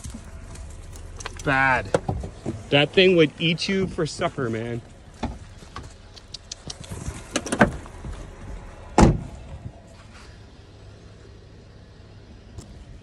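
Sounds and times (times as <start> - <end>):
low steady hum: 0.0 - 13.0
loud thump: 8.9 - 9.4.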